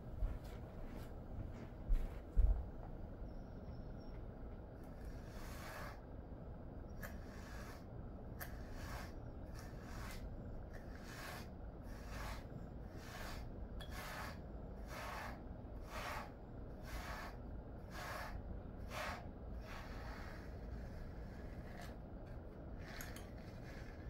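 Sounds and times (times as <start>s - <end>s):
brush stroking dog fur: 4.9s - 6.0s, 7.0s - 22.0s.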